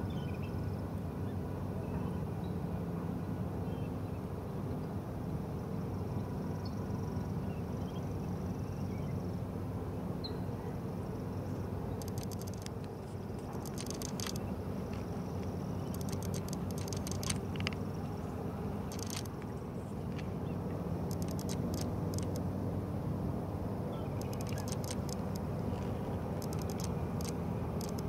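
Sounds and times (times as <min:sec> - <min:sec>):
steady low hum: 0:05.3 - 0:28.0
rapid high-pitched clicking: 0:11.9 - 0:14.5, 0:15.4 - 0:17.8, 0:18.8 - 0:19.5, 0:21.0 - 0:22.5, 0:24.1 - 0:28.0.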